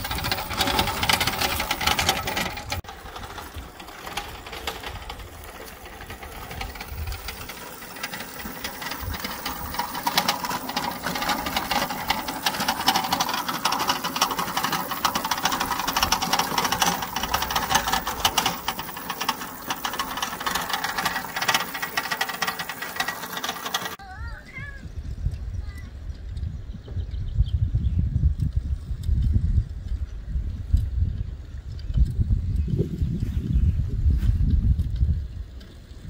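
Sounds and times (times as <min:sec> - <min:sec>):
kart rattling over gravel: 0:00.0 - 0:24.6.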